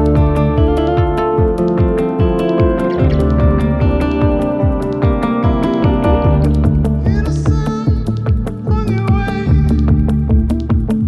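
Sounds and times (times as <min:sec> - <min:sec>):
wavering lead line: 0:00.0 - 0:08.1
bass line: 0:00.0 - 0:11.0
driving drum beat: 0:00.0 - 0:11.0
indie rock track: 0:00.0 - 0:11.0.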